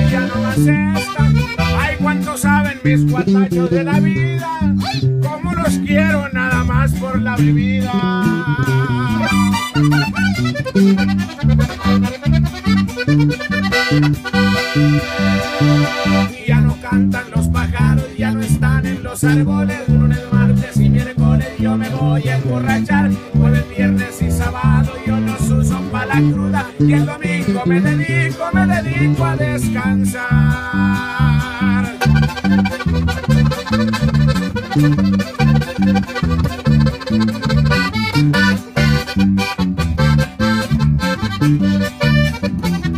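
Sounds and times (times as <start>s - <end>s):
bouncing electric bass: 0.0s - 42.9s
button accordion melody: 0.0s - 42.9s
twelve-string acoustic guitar: 0.0s - 42.9s.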